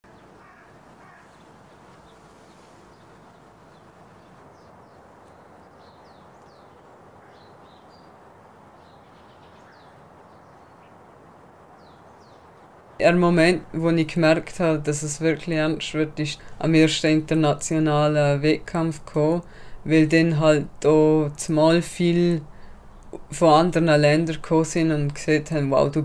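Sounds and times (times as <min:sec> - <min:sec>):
outdoor background noise: 0:00.0 - 0:26.0
small birds chirping: 0:00.1 - 0:15.8, 0:21.0 - 0:25.9.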